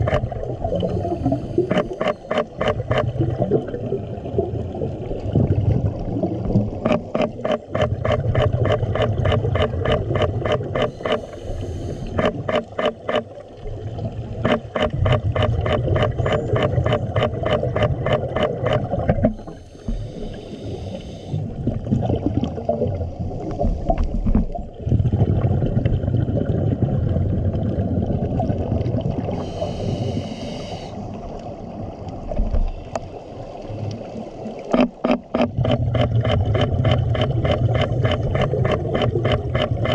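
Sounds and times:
exhaled bubbles gurgling: 0.0 - 39.9
regulator inhale hiss: 1.0 - 2.3, 10.9 - 12.2, 19.4 - 21.5, 29.3 - 31.1.

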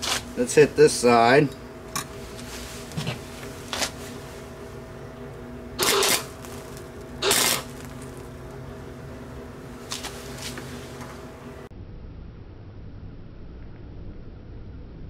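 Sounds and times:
arc welder crackling sizzle: 0.0 - 11.7.

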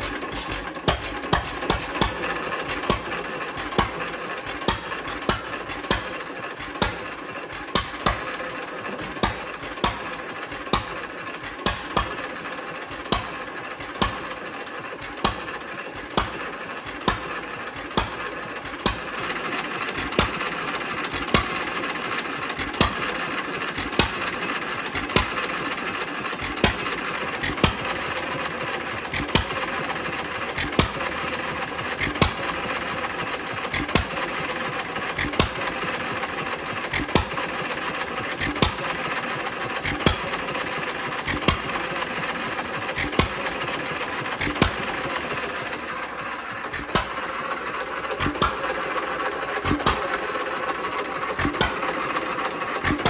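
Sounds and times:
engine mechanical clatter: 0.0 - 53.0.

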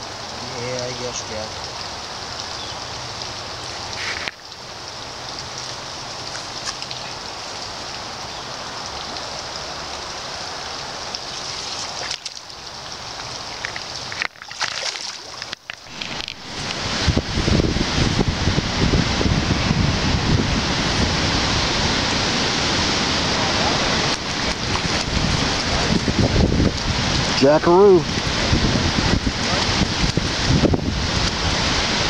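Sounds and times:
creek flowing: 0.0 - 32.0
wind buffeting microphone: 15.9 - 32.0.

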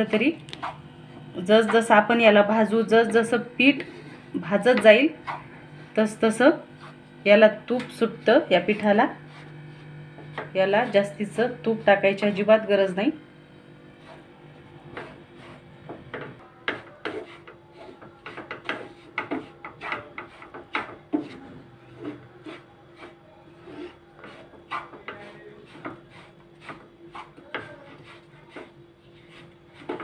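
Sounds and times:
wooden spatula scraping a pan: 6.1 - 7.1, 7.8 - 12.6, 13.9 - 30.0.

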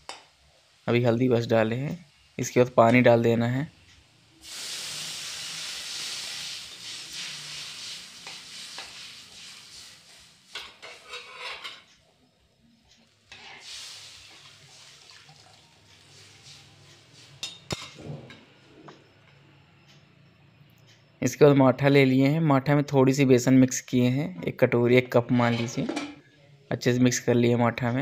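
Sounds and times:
hot oil sizzling and hissing: 0.0 - 19.2
spatula scraping a pan: 4.8 - 11.9, 13.3 - 15.3, 16.0 - 18.0
spatula clinking on metal: 10.5 - 11.9, 17.4 - 18.0.

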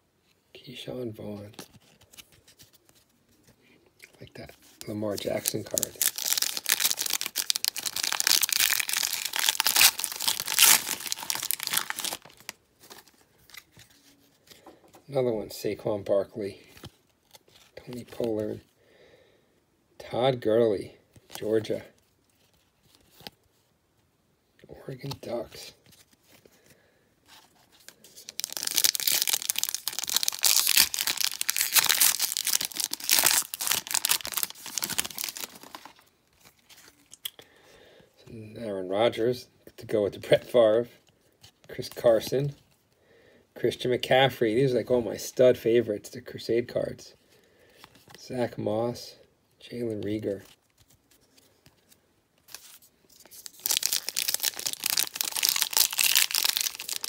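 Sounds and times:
foil wrapper crinkling: 4.7 - 13.7, 27.7 - 37.2, 51.8 - 57.0.

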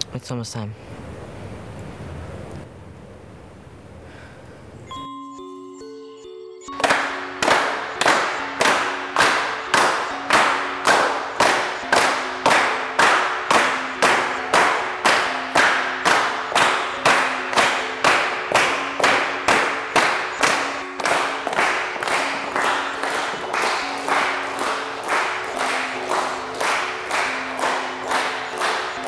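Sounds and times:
held musical notes: 4.8 - 29.0
people clapping in unison: 6.7 - 29.0.

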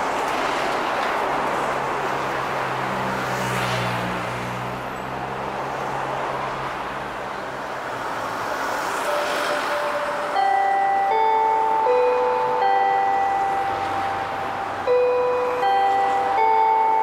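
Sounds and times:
cars and truck passing: 0.0 - 17.0
steady tone: 9.0 - 17.0.

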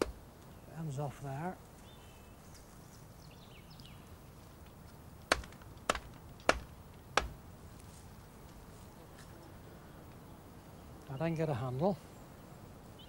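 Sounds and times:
blade chopping into wood: 0.0 - 0.2, 5.3 - 7.4.

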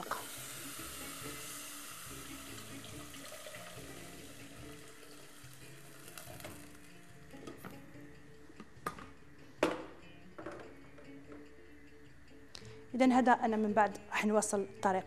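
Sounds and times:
water pouring into pot: 0.0 - 7.0.

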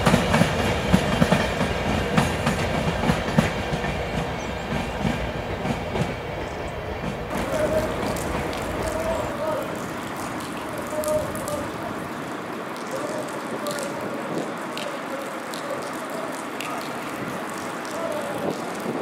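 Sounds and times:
diesel locomotive engine running: 0.0 - 12.1.

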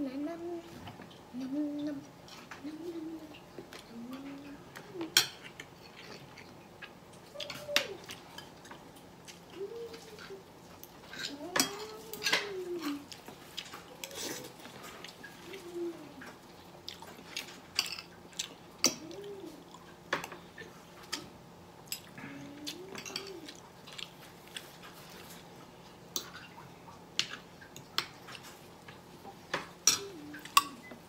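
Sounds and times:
closed-mouth hums: 0.0 - 5.2
man chewing: 5.4 - 11.2, 12.8 - 20.0, 21.9 - 28.9.

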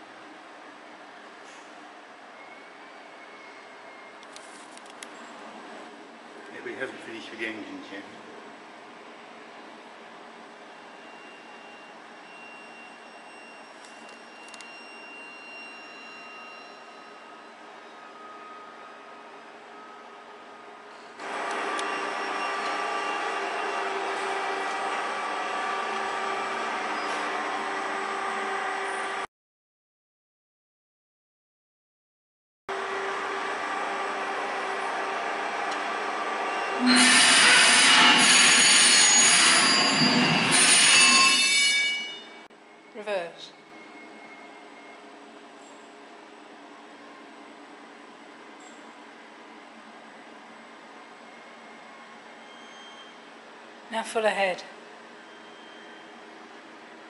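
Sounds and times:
steam engine mechanical hum: 0.0 - 29.2
high ringing tones: 10.6 - 19.1, 36.1 - 45.8, 55.2 - 56.6.

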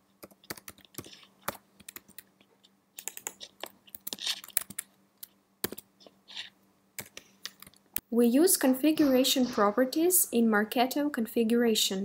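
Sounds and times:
typing on a keyboard: 0.2 - 2.3, 3.0 - 4.9, 5.6 - 5.9.

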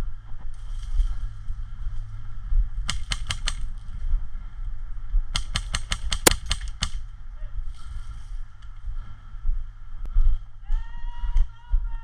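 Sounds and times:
low rumble: 0.0 - 5.4, 6.2 - 12.0
airsoft gun shots: 5.3 - 7.0.

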